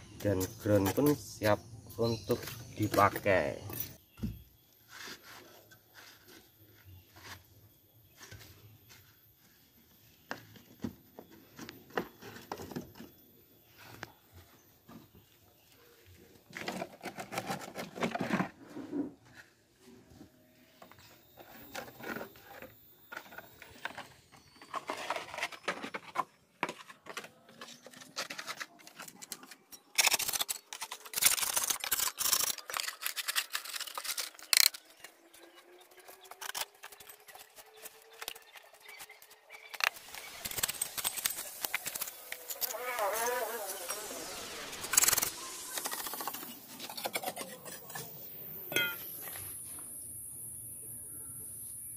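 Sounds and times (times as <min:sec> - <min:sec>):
wooden boards scraping and rattling: 0:16.5 - 0:19.2, 0:21.3 - 0:35.1.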